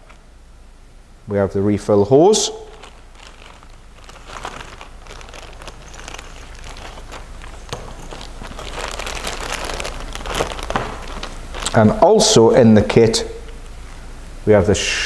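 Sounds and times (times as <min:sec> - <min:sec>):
plastic bag crinkling: 0:02.2 - 0:12.4.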